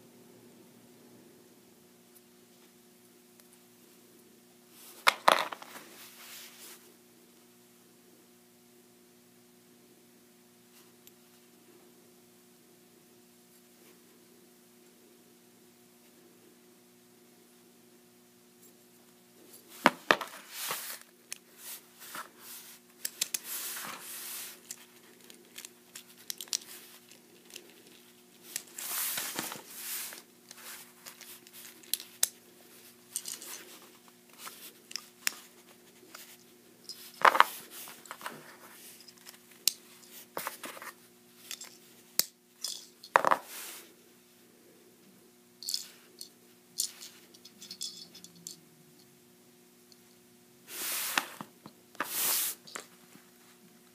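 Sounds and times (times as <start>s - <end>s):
faint steady hum: 0.0s - 53.9s
plastic parts clicking and snapping: 24.7s - 28.0s.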